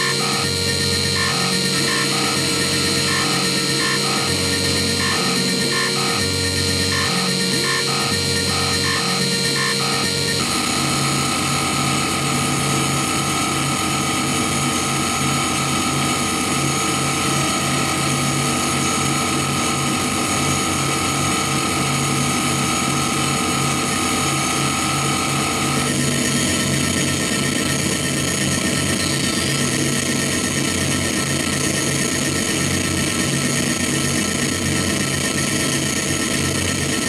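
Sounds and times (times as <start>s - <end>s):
wall of static: 0.0s - 11.5s
low stuttering pulse: 0.0s - 21.4s
steady high electronic tones: 0.0s - 26.0s.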